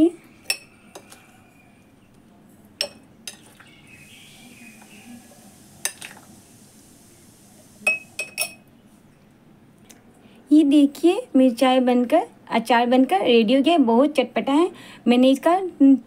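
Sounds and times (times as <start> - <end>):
metal spoon clinking on glass: 0.4 - 0.7, 2.8 - 3.4, 7.9 - 8.6.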